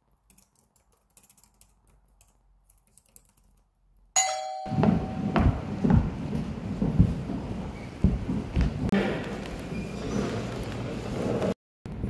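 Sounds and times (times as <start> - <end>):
keyboard typing: 0.1 - 3.6
bell-like chime: 4.2 - 5.4
walking footsteps: 4.7 - 9.8.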